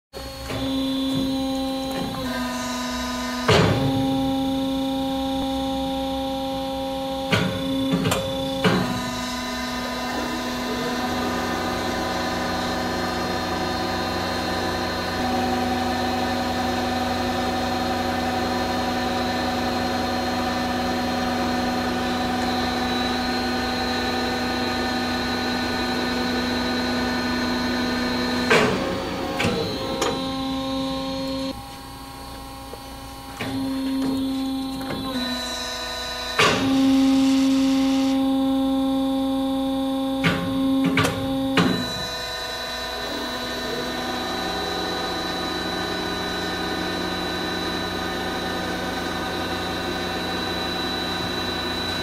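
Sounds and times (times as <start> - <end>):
deeper machine running sound: 0.1 - 52.0
tube bender machine hum: 0.1 - 52.0.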